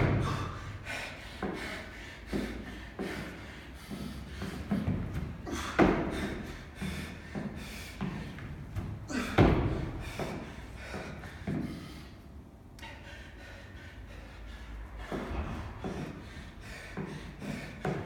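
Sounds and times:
thuds and knocks from pull-up rig: 0:00.0 - 0:00.6, 0:08.0 - 0:10.4.

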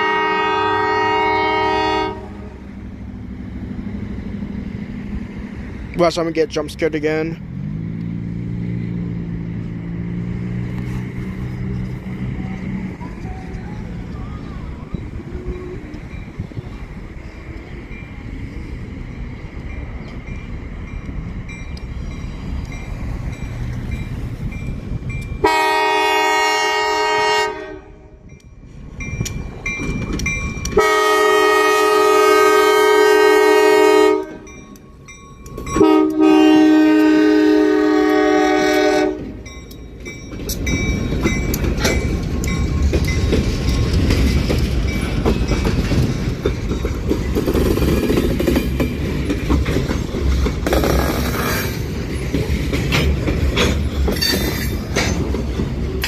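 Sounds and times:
train air horn blasts: 0:00.0 - 0:02.6, 0:25.4 - 0:28.2, 0:30.8 - 0:34.5, 0:35.8 - 0:39.4
diesel locomotive rumbling: 0:00.0 - 0:56.0
freight car wheels clacking: 0:39.6 - 0:56.0.

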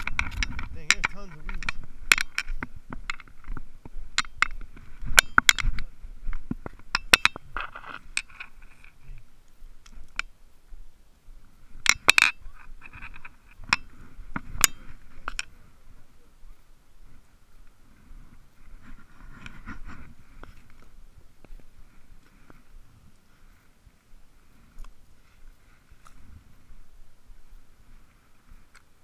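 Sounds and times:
fishing tackle clicking and clinking: 0:00.0 - 0:03.5, 0:06.9 - 0:07.4.

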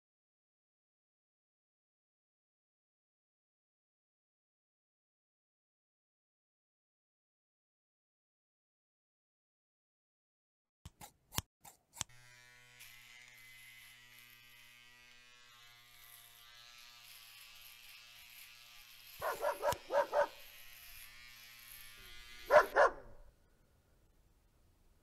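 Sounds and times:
electric hair clippers buzzing: 0:11.7 - 0:23.2
dog barking: 0:19.2 - 0:20.4, 0:22.5 - 0:23.2.

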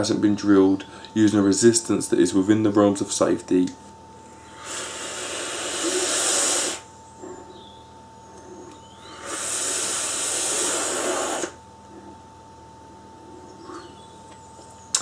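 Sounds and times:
air hissing through atomizer: 0:04.4 - 0:06.9, 0:08.7 - 0:11.6.

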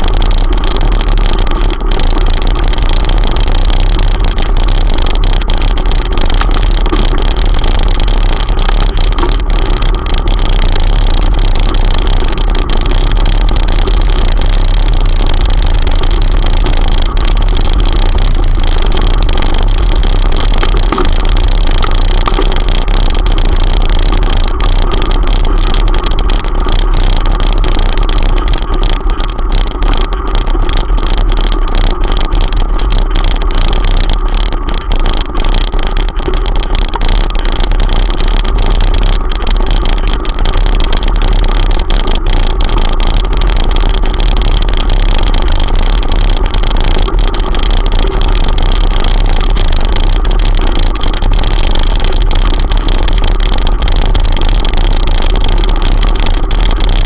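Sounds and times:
camera rattling over gravel: 0:00.0 - 0:57.0.

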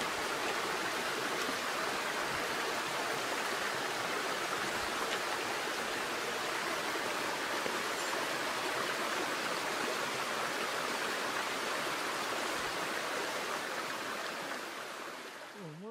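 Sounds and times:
stream flowing over stones: 0:00.0 - 0:15.9.

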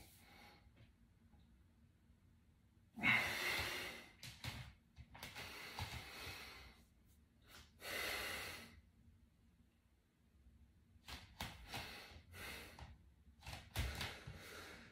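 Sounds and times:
man breathing heavily with effort: 0:03.0 - 0:04.5, 0:05.2 - 0:06.9, 0:07.5 - 0:08.8, 0:11.5 - 0:13.0, 0:13.7 - 0:14.9.

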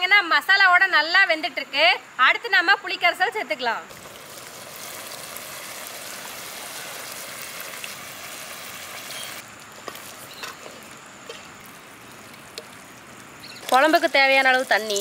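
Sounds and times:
liquid dripping and splashing: 0:03.9 - 0:10.2, 0:11.6 - 0:15.0
steady hiss: 0:03.9 - 0:14.9.

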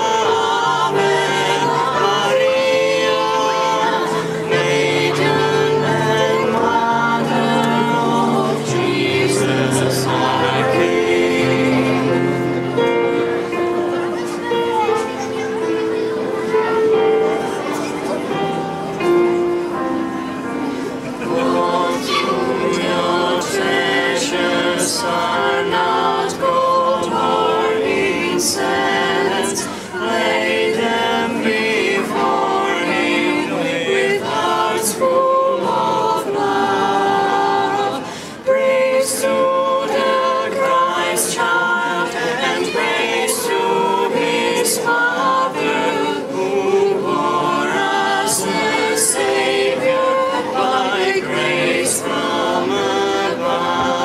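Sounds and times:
children's choir singing: 0:00.0 - 0:54.0.

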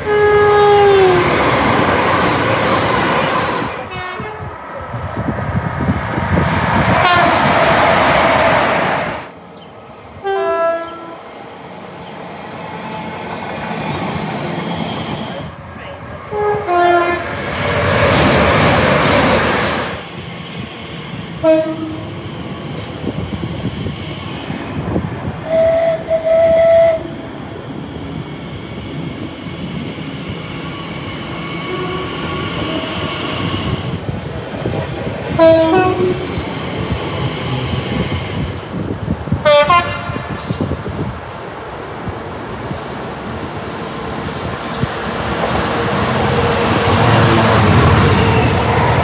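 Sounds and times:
two-tone train horn blasts: 0:00.0 - 0:01.3, 0:03.8 - 0:04.5, 0:07.0 - 0:07.5, 0:10.2 - 0:11.2, 0:16.3 - 0:17.4, 0:21.4 - 0:22.2, 0:25.5 - 0:27.1, 0:31.7 - 0:33.1, 0:35.4 - 0:36.3, 0:39.4 - 0:40.6, 0:48.0 - 0:48.8
train rumble: 0:00.0 - 0:49.0.

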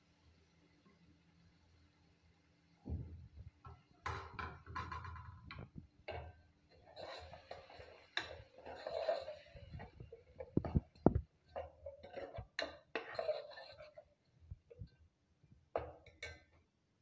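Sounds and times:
metal spoon scraping in a pot: 0:05.5 - 0:14.8.

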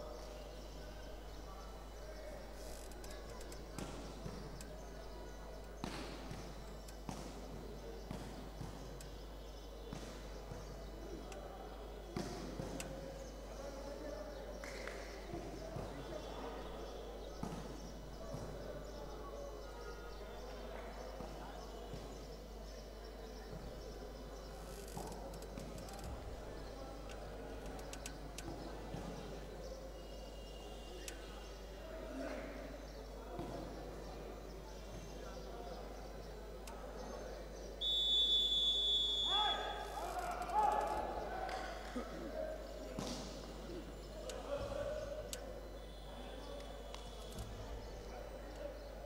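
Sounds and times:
hall background noise: 0:00.0 - 0:49.0
murmur of voices: 0:00.0 - 0:49.0
ball bouncing on indoor court: 0:05.8 - 0:09.2, 0:09.8 - 0:10.8, 0:12.1 - 0:12.9, 0:17.3 - 0:18.6.

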